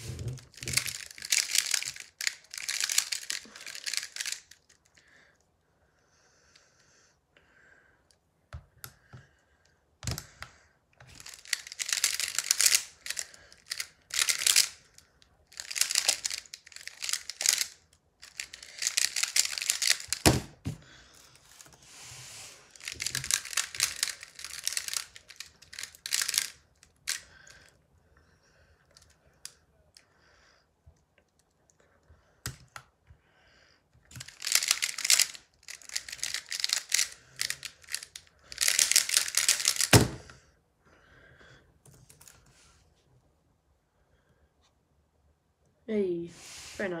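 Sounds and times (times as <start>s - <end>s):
plastic puzzle layers clacking: 0.0s - 4.8s, 11.0s - 20.7s, 22.7s - 27.6s, 34.1s - 40.2s.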